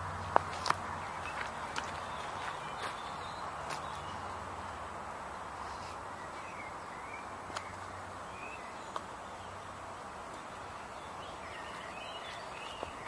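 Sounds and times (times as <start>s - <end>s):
outdoor background hiss: 0.0s - 13.0s
faint bird chirps: 10.4s - 13.0s.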